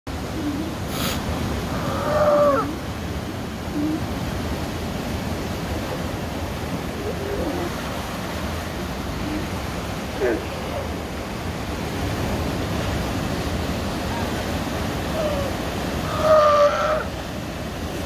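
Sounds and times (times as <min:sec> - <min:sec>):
surf noise: 0:00.1 - 0:18.0
sea lion calling: 0:00.2 - 0:04.3, 0:06.8 - 0:08.0, 0:08.9 - 0:11.2, 0:15.0 - 0:17.2.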